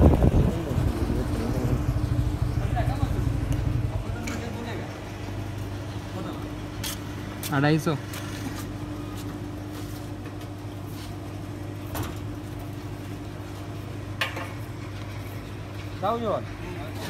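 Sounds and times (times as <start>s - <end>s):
fuel pump motor humming: 0.0s - 6.8s.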